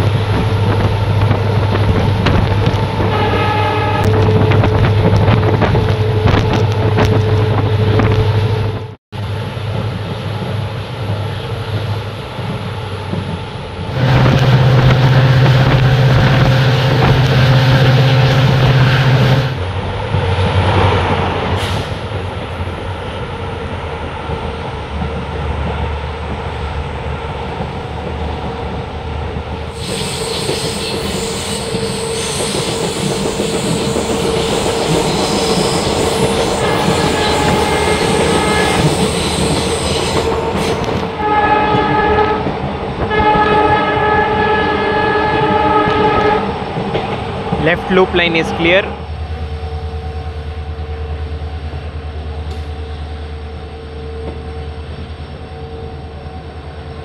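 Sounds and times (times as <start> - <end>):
train wheels on track: 0.0 - 57.0
locomotive horn blasts: 3.1 - 8.0, 13.9 - 19.6, 36.2 - 42.5, 43.1 - 46.5.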